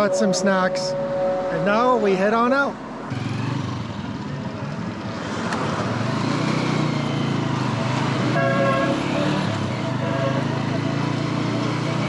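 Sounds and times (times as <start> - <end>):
vehicle horn tooting: 0.0 - 2.3, 8.3 - 10.6.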